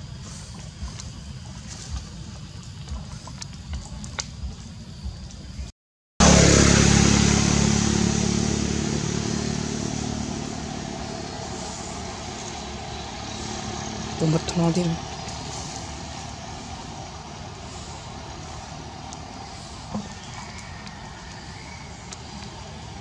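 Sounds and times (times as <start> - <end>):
low rumble: 0.0 - 23.0
vehicle engine running: 6.2 - 23.0.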